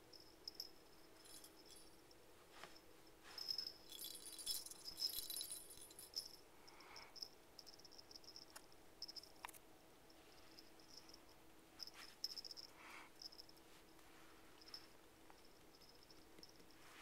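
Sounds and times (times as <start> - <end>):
jingle bell rattling: 0.0 - 2.1, 3.4 - 9.3, 10.5 - 13.6, 14.6 - 16.7.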